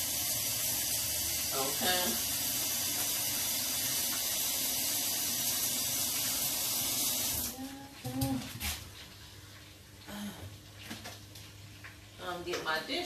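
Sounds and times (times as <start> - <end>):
faucet running: 0.0 - 7.6.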